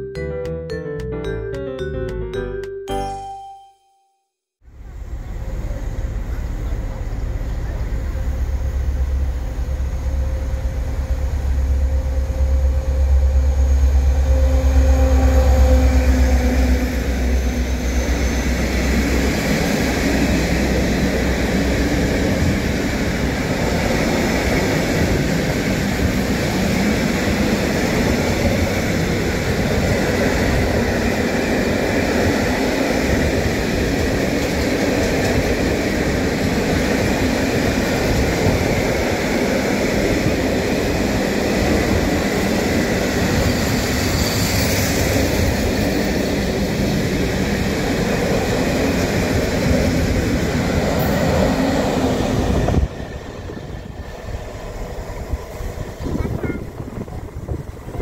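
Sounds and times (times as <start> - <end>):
diesel locomotive engine rumble: 4.7 - 58.0.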